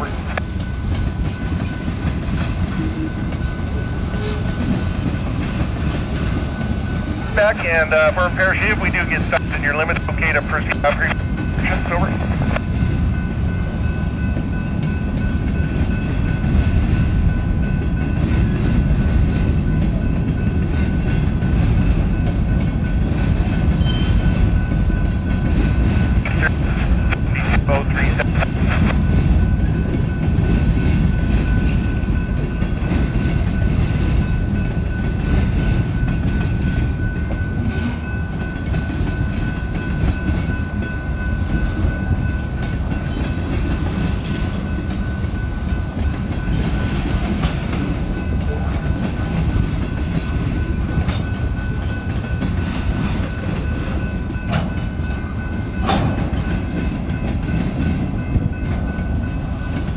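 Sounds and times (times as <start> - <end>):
train wheels rumbling on rail: 0.0 - 59.9
clicking at rail joints: 54.4 - 55.2.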